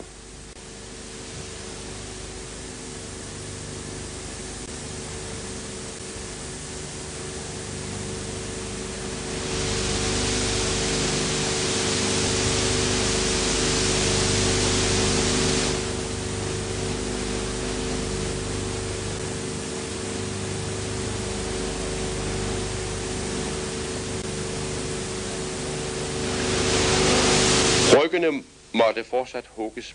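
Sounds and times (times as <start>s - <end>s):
film soundtrack hiss and hum: 0.0s - 29.9s.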